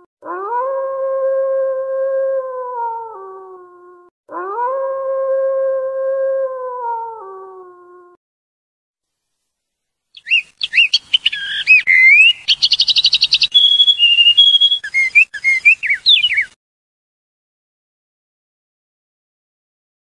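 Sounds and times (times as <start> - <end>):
wolf howling: 0.2 - 8.2
songbird singing: 10.2 - 16.6.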